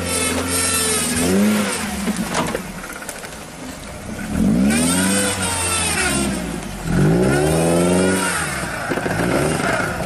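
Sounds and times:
car engine revving hard: 0.0s - 2.2s, 4.2s - 10.0s.

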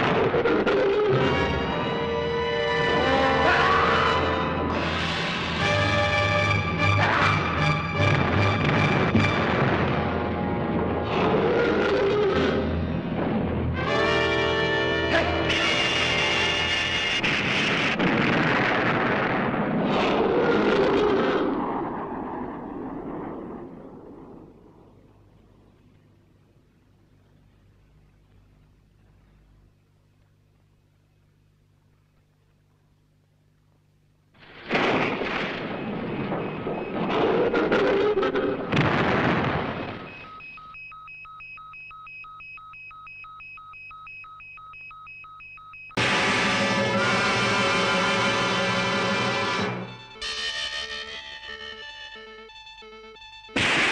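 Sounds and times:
explosion with crackle: 0.0s - 0.8s, 8.0s - 12.3s, 17.0s - 26.1s, 34.4s - 40.4s, 46.0s - 47.8s, 53.6s - 53.9s.

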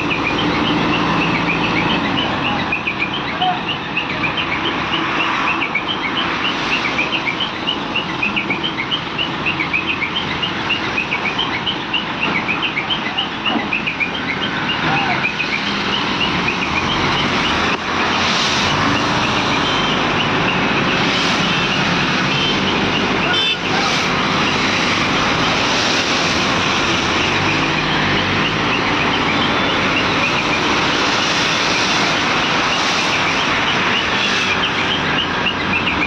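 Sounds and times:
crane diesel engines running: 0.0s - 36.0s.

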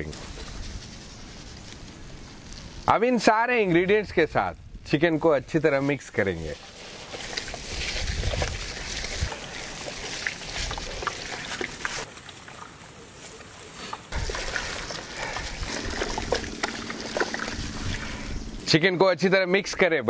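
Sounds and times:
wet squelching and sloshing: 6.6s - 18.7s.

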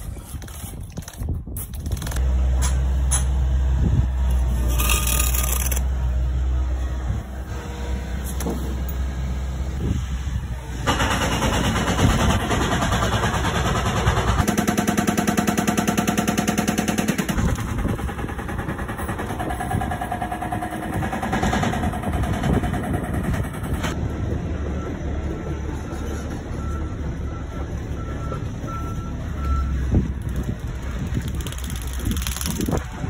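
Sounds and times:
rough machine noise: 1.9s - 9.8s
engine chugging: 16.0s - 24.0s.

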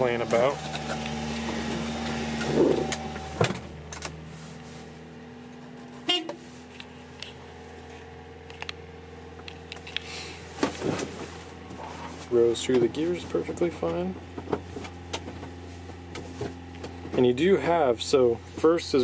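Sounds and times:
engine idling hum: 0.0s - 19.0s.

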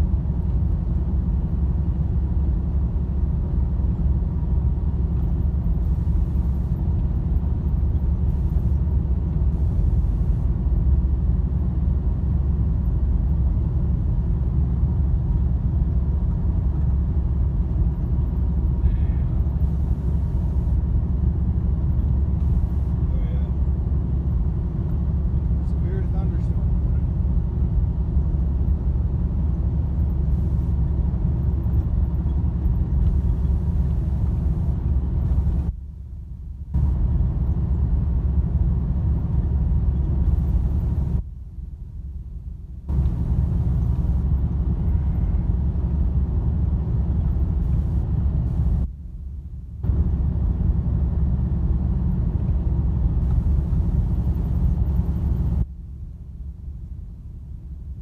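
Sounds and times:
road and engine rumble: 0.0s - 58.0s.

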